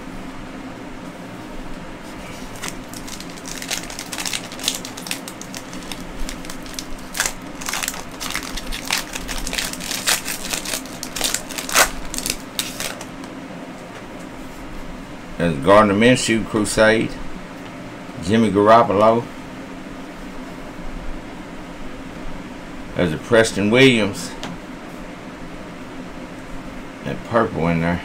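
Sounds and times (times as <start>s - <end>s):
foil wrapper crinkling: 2.2s - 13.3s.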